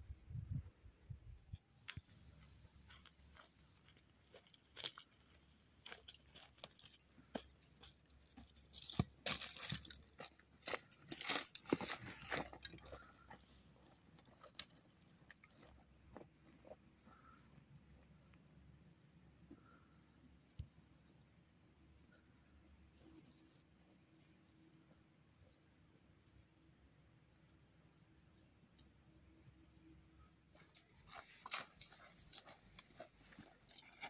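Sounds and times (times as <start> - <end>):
irregular crunching and clicking: 2.9 - 17.4, 30.5 - 34.0.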